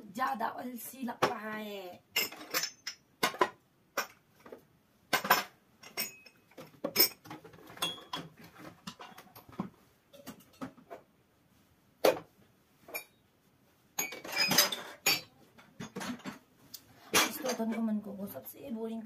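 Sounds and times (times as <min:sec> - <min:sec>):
dishes clinking and clattering: 0:02.1 - 0:11.1, 0:12.9 - 0:13.2, 0:14.0 - 0:16.5, 0:17.1 - 0:17.8.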